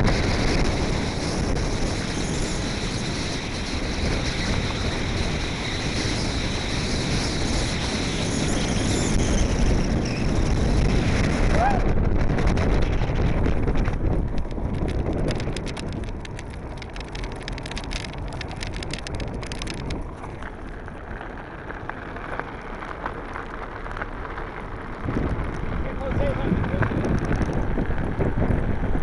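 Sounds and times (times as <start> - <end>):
wind buffeting microphone: 0.0 - 29.0
rapid crackling clicks: 9.3 - 29.0.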